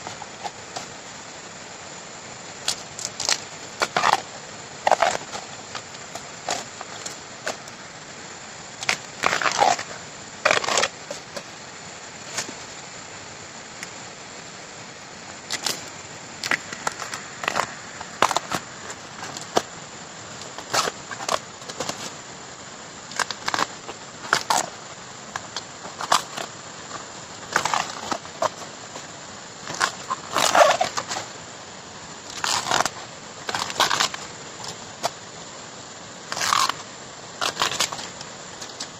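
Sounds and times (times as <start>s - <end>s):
bamboo sheaths tearing: 2.6s - 7.7s, 8.8s - 11.5s, 15.5s - 19.7s, 20.4s - 22.1s, 23.1s - 28.7s, 29.6s - 31.3s, 32.3s - 35.1s, 36.3s - 38.9s.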